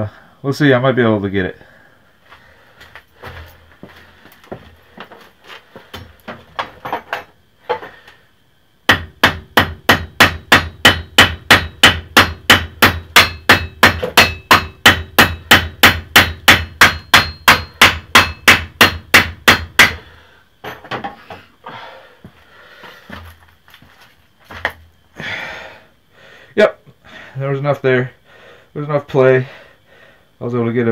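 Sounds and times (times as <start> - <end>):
hammer blows on metal: 8.9 - 20.1.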